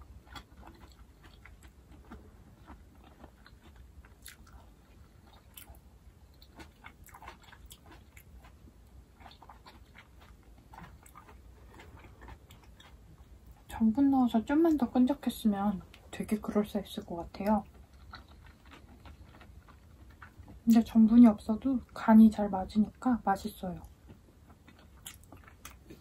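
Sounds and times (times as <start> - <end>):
person chewing with wet mouth clicks: 0.2 - 13.7, 24.0 - 26.0.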